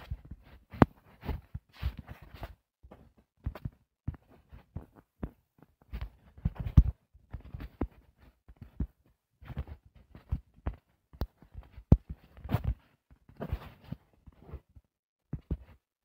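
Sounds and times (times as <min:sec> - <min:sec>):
soft thumps on a tablet: 0:15.4 - 0:15.8.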